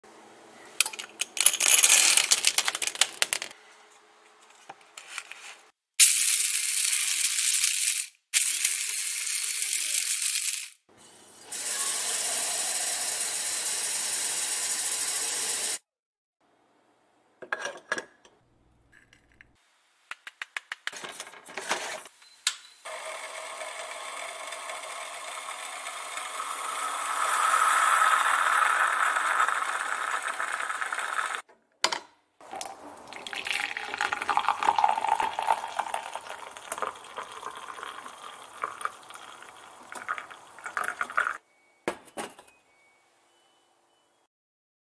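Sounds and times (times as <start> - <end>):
coffee beans rattling into metal bowl: 0.8 - 3.5, 6.0 - 10.8, 24.6 - 31.4, 32.5 - 41.4
moka pot hissing: 11.4 - 15.8, 22.9 - 31.4, 32.6 - 41.4
running water from tap: 11.4 - 15.8, 22.9 - 31.4, 32.4 - 41.4
blade grinder motor running: 22.9 - 31.4.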